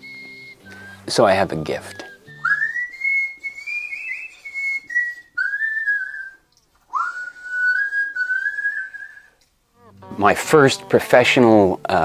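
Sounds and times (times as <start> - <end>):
man whistling: 0.0 - 9.4.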